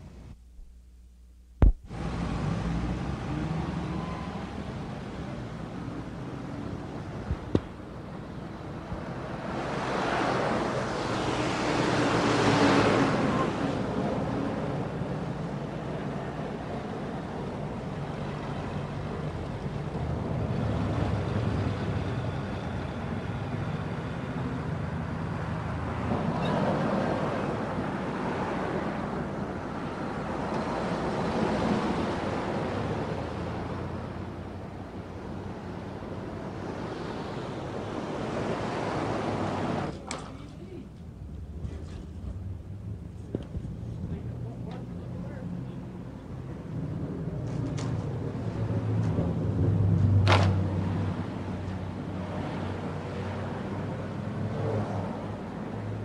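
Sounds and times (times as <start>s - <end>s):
cars driving past: 1.9s - 40.1s, 40.7s - 56.0s.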